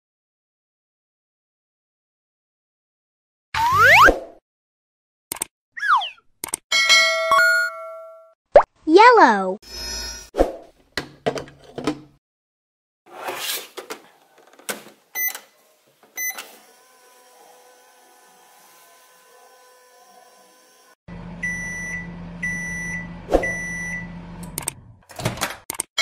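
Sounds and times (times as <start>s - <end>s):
sharp click: 5.3s - 5.5s, 6.4s - 6.6s, 25.7s - 25.9s
toy microwave electronic beeps: 15.2s - 15.4s, 16.2s - 16.6s, 21.4s - 24.2s.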